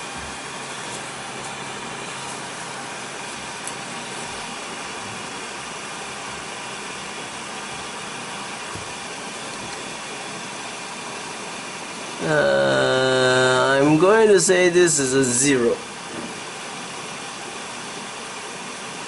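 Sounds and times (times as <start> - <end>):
fans whirring: 0.0 - 19.0.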